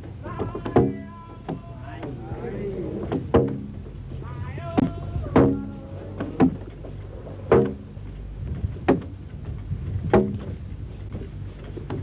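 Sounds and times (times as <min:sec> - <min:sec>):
low tape hum: 0:00.0 - 0:12.0
workers shouting work chant: 0:00.2 - 0:03.5, 0:04.1 - 0:06.6.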